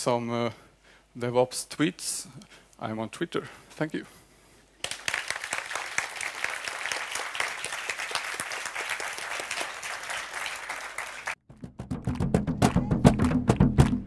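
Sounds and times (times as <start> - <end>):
audience applauding: 4.8 - 11.4.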